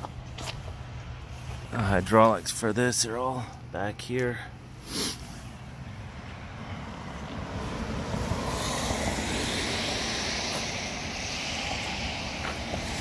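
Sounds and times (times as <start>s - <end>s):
traffic rumble: 0.0s - 13.0s
tyres hissing on wet road: 4.8s - 5.8s, 6.5s - 13.0s.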